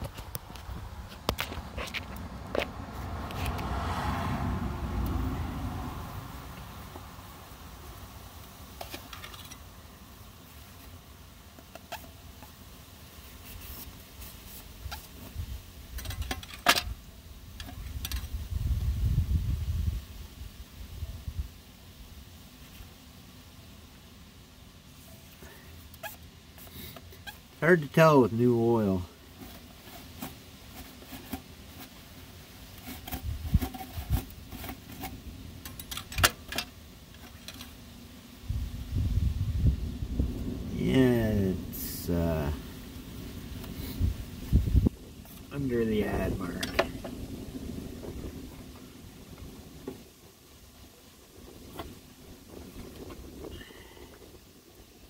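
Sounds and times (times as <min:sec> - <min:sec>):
hands handling parts: 0:08.4 - 0:09.6, 0:13.4 - 0:17.0, 0:29.3 - 0:37.8
low rumbling handling noise: 0:29.0 - 0:50.4.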